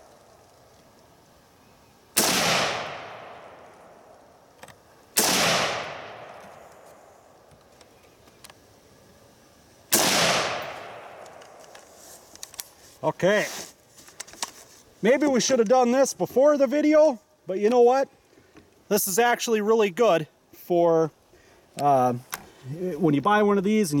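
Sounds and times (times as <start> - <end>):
rifle shots: 2.2 - 3.7, 5.2 - 6.6, 9.9 - 11.6.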